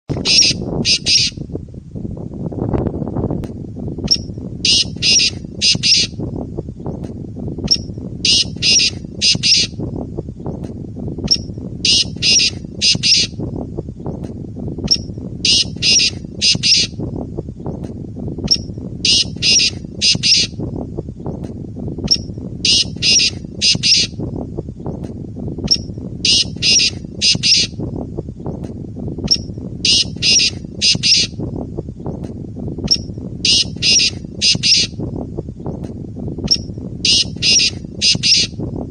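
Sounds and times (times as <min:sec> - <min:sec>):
francolin calling: 0:00.2 - 0:01.4, 0:04.1 - 0:06.2, 0:07.7 - 0:09.8, 0:11.3 - 0:13.4, 0:14.9 - 0:17.0, 0:18.5 - 0:20.6, 0:22.1 - 0:24.2, 0:25.7 - 0:27.8, 0:29.3 - 0:31.4, 0:32.9 - 0:35.0, 0:36.5 - 0:38.6.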